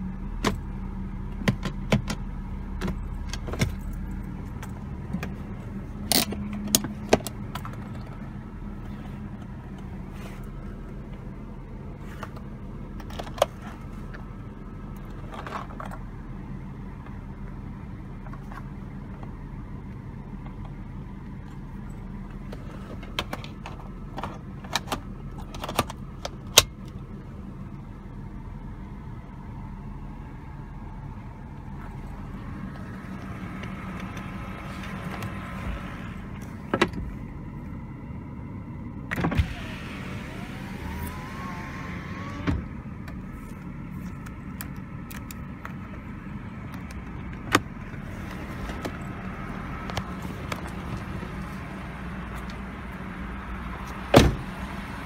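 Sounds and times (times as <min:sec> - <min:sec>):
car engine idling hum: 0:00.0 - 0:55.0
power window motor whirring: 0:39.1 - 0:44.3.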